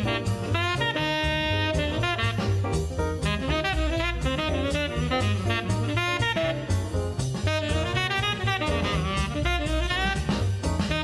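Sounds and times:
bass line: 0.0 - 11.0
drums: 0.0 - 11.0
saxophone melody: 0.0 - 11.0.

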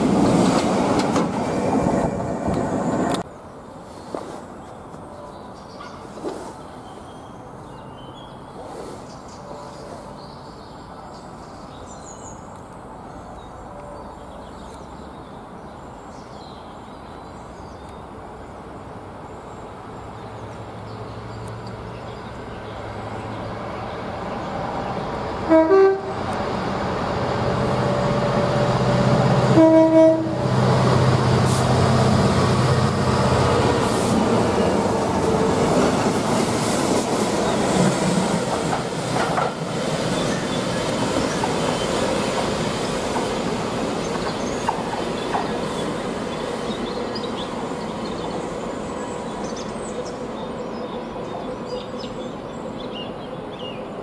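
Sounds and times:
train wheels clattering over rails: 0.0 - 3.2, 30.6 - 47.4
diesel locomotive engines: 0.0 - 7.7, 18.0 - 54.0
locomotive horn blasts: 25.4 - 26.3, 29.5 - 30.6.

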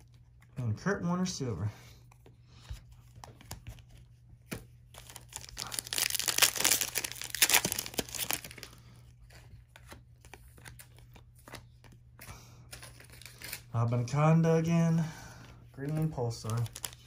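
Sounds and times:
wrapper crinkling: 4.9 - 8.8, 15.8 - 17.0.

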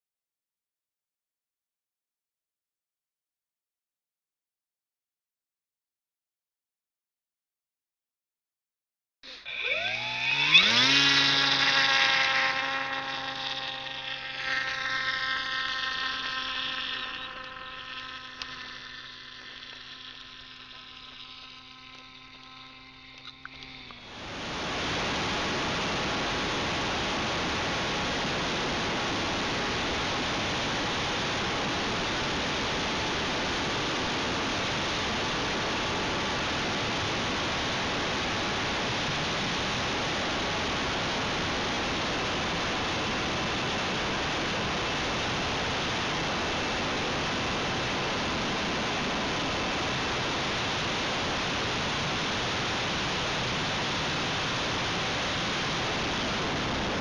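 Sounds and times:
airflow and propeller rushing: 9.2 - 57.0
faint whining tones: 9.2 - 57.0.

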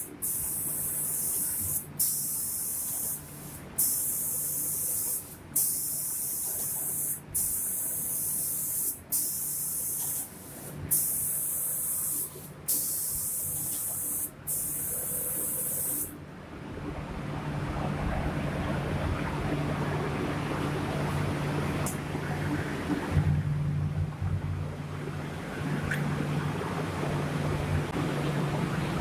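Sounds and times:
spray gun hissing: 0.0 - 16.1
machine hum: 14.4 - 29.0
low rushing noise: 16.2 - 29.0.

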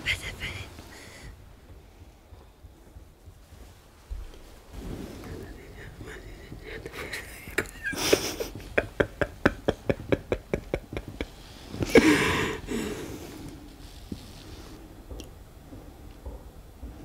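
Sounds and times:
man sobbing or laughing: 6.9 - 12.9.

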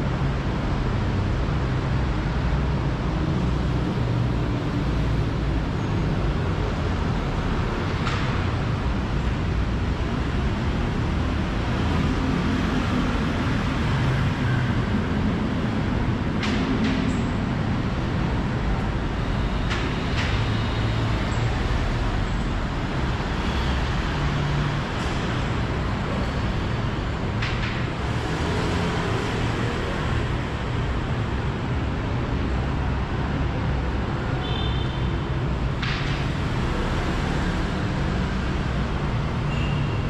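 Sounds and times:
traffic rumble: 0.0 - 40.0.

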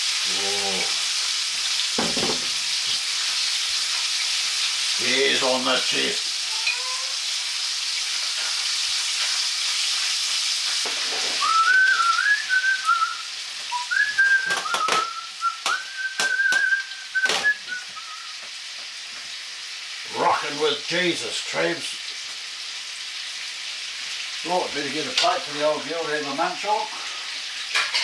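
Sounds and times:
fish sizzling in a frying pan: 0.0 - 28.0
high thin whistling tone: 11.3 - 18.4.

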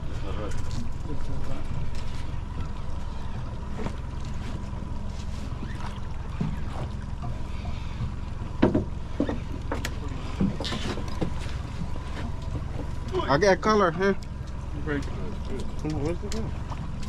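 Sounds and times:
boat engine idling: 0.0 - 17.0
short knocks: 8.6 - 11.4.

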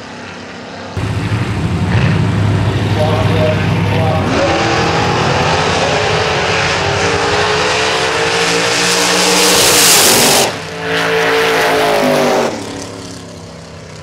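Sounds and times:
drag car engines accelerating: 0.1 - 14.0.

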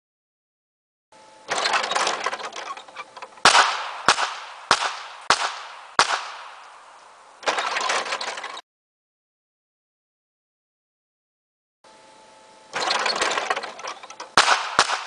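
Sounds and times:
target mechanism rattling: 1.5 - 6.4, 7.4 - 8.6, 12.8 - 15.0
pistol shots: 3.4 - 6.8, 14.4 - 15.0.

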